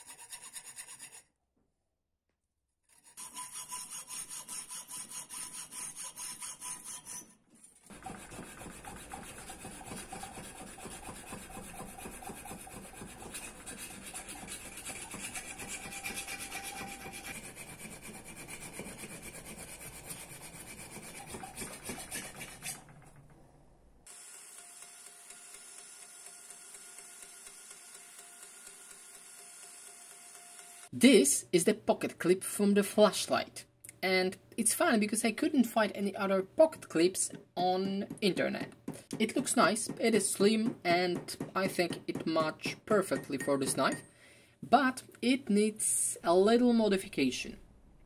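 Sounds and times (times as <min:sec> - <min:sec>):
tool scraping metal knife: 0:00.0 - 0:01.3, 0:02.9 - 0:23.2.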